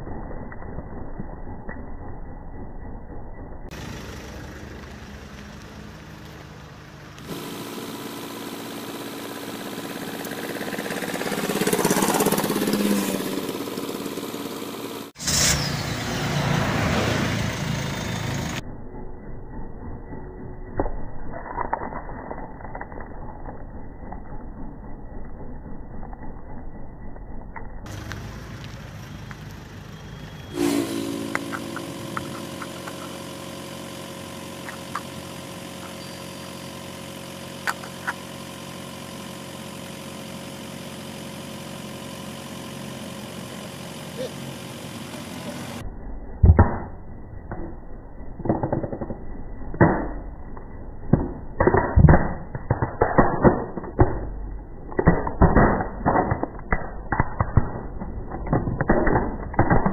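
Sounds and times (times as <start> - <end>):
car engine idling: 3.7 - 15.2, 27.9 - 45.8
plastic cracking under a car tyre: 51.1 - 59.9.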